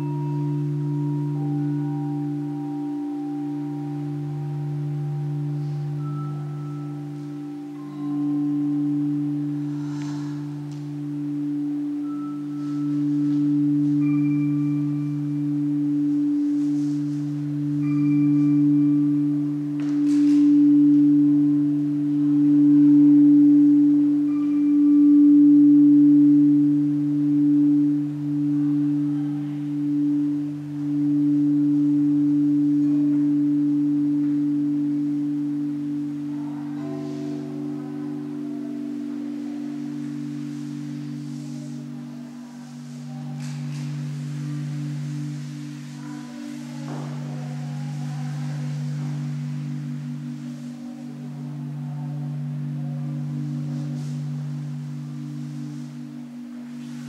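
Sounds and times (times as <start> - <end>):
bell-like tones: 0.0 - 57.0
low ambient drone: 0.0 - 57.0
faint swishes: 28.0 - 57.0.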